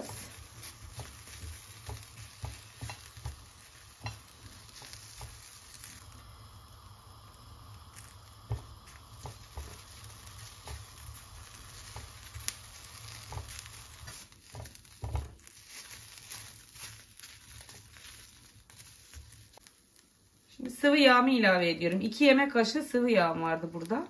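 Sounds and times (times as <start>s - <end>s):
spatula tapping and scraping pan: 0.0s - 6.0s, 8.0s - 19.4s
peppers sizzling in a pan: 0.0s - 24.0s.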